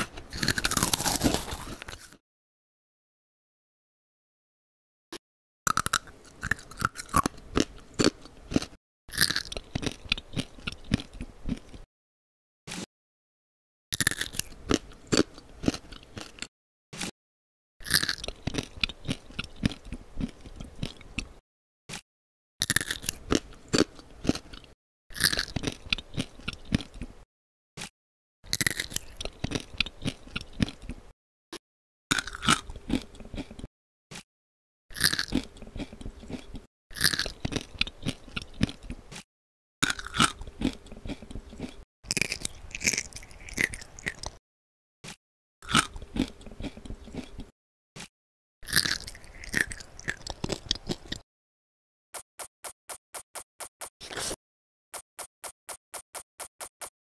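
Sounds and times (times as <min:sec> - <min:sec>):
crunchy biting and chewing: 0:00.0 - 0:02.2, 0:05.7 - 0:11.9, 0:14.0 - 0:17.1, 0:17.8 - 0:22.0, 0:22.6 - 0:27.2, 0:28.5 - 0:31.0, 0:32.1 - 0:34.2, 0:34.9 - 0:44.4, 0:45.1 - 0:51.2.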